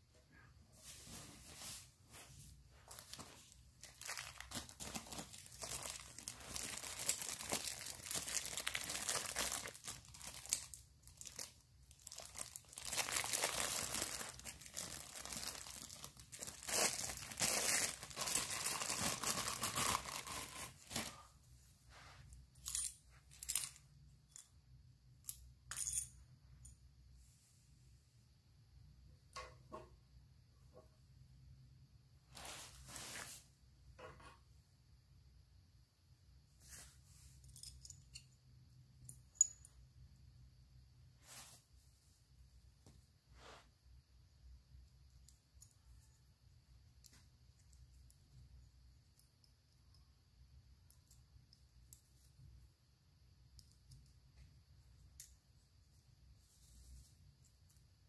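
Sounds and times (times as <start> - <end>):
plastic bag crinkling and tearing: 2.9 - 21.2.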